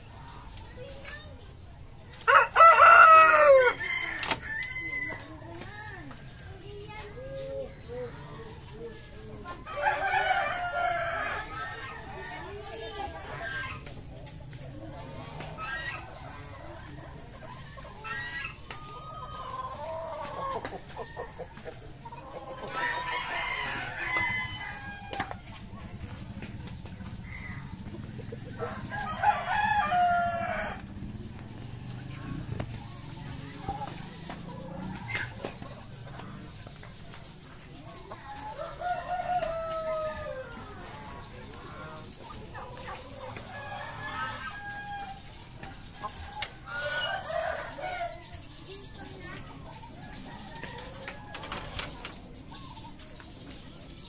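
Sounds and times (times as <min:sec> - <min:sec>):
chickens clucking: 0:00.0 - 0:54.0
rooster crowing: 0:02.3 - 0:05.4, 0:22.8 - 0:25.4, 0:28.6 - 0:31.0, 0:38.6 - 0:40.6.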